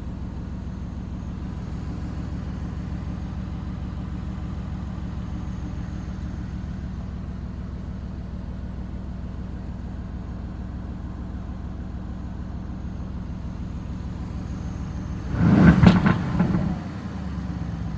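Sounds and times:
car engine idling: 0.0 - 17.9
engine revving: 15.1 - 17.4.

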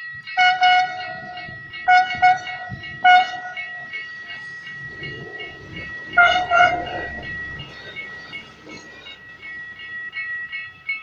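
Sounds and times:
train low rumble: 0.0 - 11.0
train horn short toots: 0.4 - 1.2, 1.9 - 3.6, 6.2 - 7.2.

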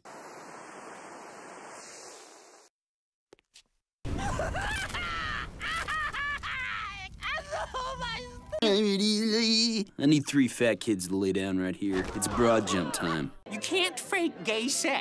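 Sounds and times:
man wailing: 8.6 - 9.8.

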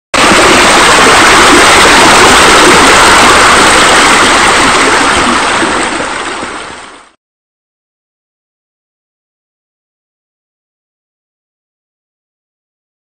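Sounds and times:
rush of running water: 0.2 - 7.2.

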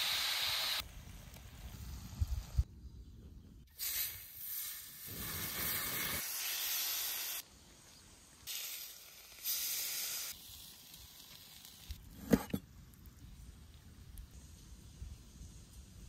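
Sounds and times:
hot food sizzling: 0.0 - 0.8, 3.8 - 7.5, 8.1 - 12.0.

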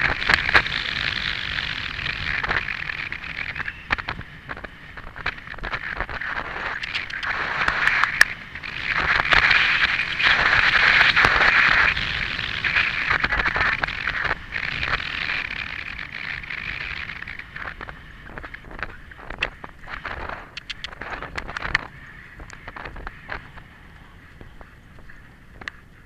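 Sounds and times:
sharp clicks: 0.0 - 23.5
wind rushing past microphone: 0.0 - 26.0.

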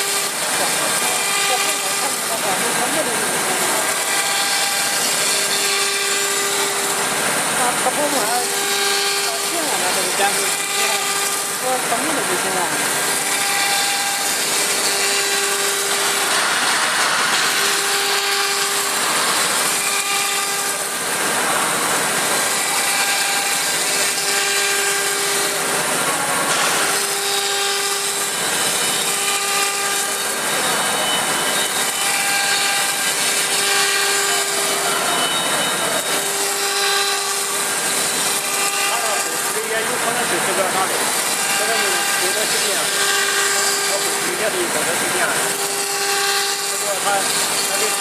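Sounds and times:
router spindle cutting with whine: 0.0 - 48.0.

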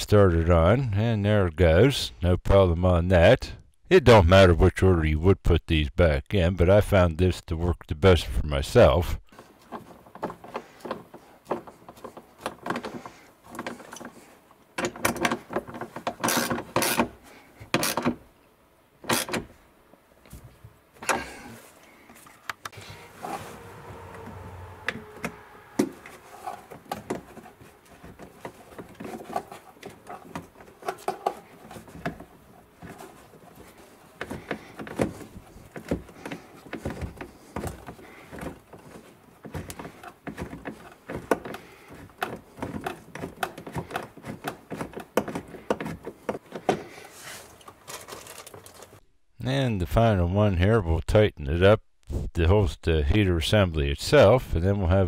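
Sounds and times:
metal parts clattering: 47.8 - 49.0.

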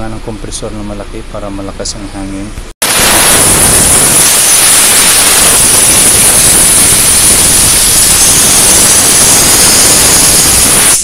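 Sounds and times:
air blow gun hissing: 2.8 - 11.0.

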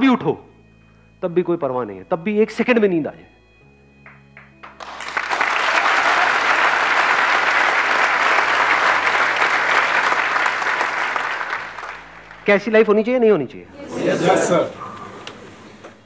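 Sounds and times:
audience applauding: 4.0 - 12.6, 13.7 - 16.0.

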